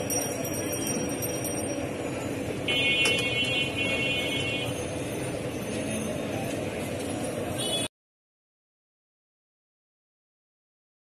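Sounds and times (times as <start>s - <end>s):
busy street market noise: 0.0s - 7.9s.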